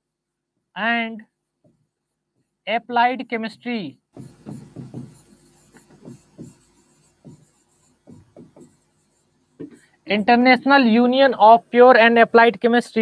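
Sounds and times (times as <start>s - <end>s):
stylus scratching on screen: 4.2s - 12.0s.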